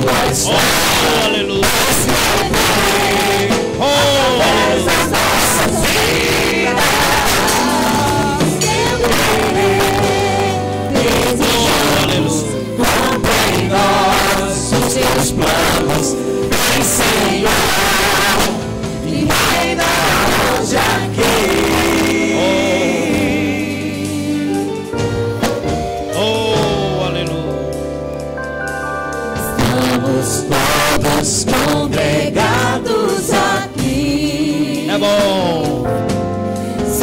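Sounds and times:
man and woman singing together: 0.0 - 24.8, 29.4 - 35.9
keyboard: 0.0 - 37.0
steady beat: 0.2 - 23.6.

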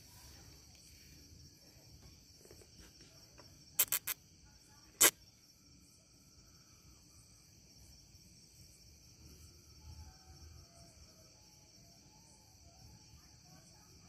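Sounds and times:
crickets chirping: 0.0 - 14.0
sharp clicks: 3.8 - 4.2.

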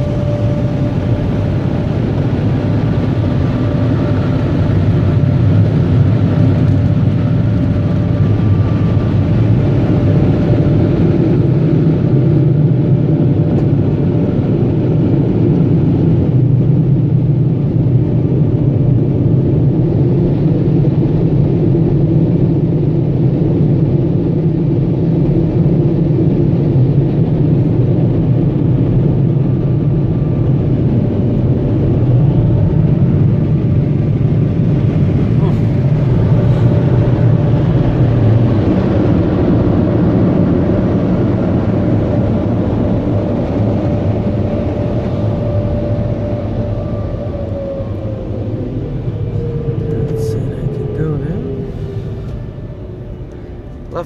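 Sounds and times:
air rushing inside car cabin: 0.0 - 14.4, 27.3 - 54.0
faint hum: 0.0 - 54.0.

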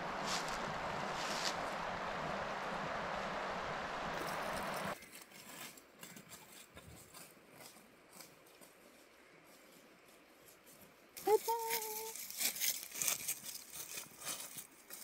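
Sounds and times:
footsteps on a path: 0.0 - 3.5, 4.1 - 15.0
steady rushing noise: 0.0 - 5.0.

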